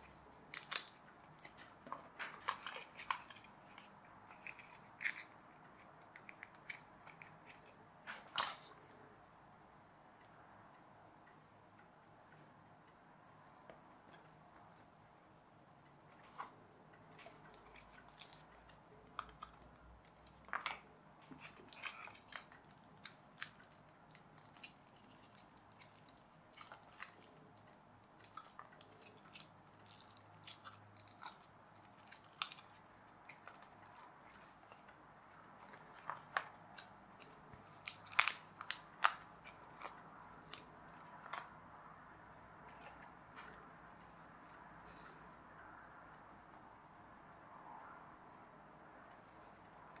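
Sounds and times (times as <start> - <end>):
plastic pieces clicking together: 0.0 - 8.7, 17.0 - 41.6
plastic pieces snapping: 0.0 - 8.8, 16.4 - 41.7.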